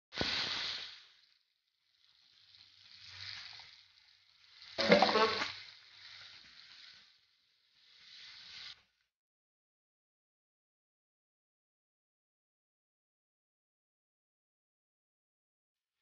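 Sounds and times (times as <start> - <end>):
meat sizzling in a wok: 0.1 - 9.0
sauce poured onto sizzling meat: 0.2 - 9.0
wooden spatula stirring: 4.8 - 7.1.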